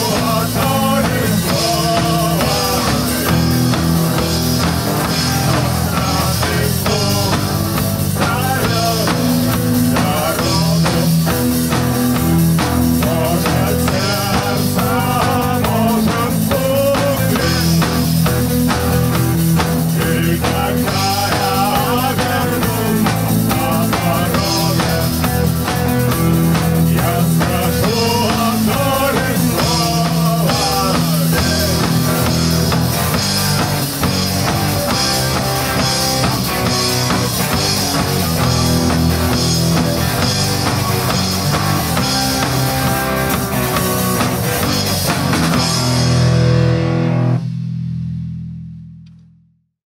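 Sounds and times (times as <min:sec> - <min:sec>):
man singing: 0:00.0 - 0:03.8, 0:05.3 - 0:11.5, 0:12.8 - 0:18.5, 0:19.7 - 0:32.9
drum kit: 0:00.0 - 0:49.2
guitars: 0:00.0 - 0:49.2
bass guitar: 0:00.0 - 0:49.7.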